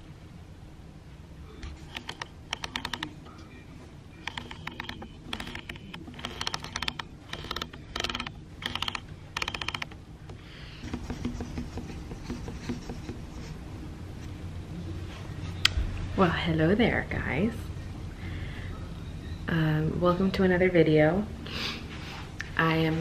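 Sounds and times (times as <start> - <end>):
rapid ratchet-like clicking: 2.0 - 3.1, 4.3 - 10.0.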